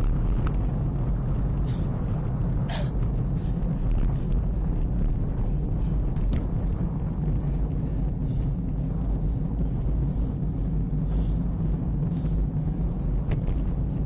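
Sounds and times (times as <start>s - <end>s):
road noise: 0.0s - 14.0s
wind rumble on microphone: 0.0s - 14.0s.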